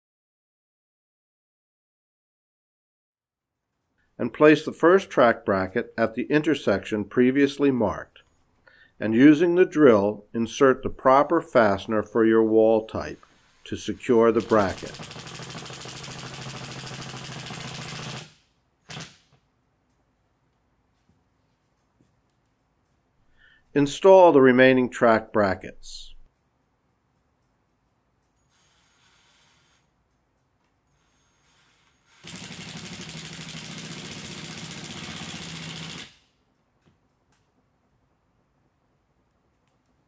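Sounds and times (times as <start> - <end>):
cordless drill driving a fastener: 28.4 - 29.9, 30.9 - 36.3.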